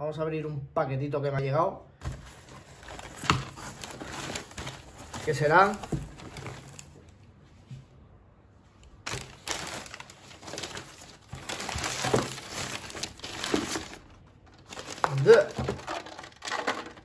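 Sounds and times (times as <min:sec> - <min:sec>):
newspaper rustling and crinkling: 0:02.0 - 0:07.2, 0:09.0 - 0:17.0.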